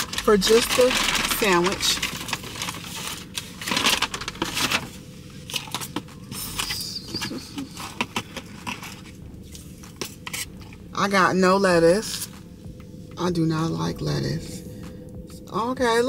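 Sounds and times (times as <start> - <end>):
paper bag rustling: 0.0 - 10.5.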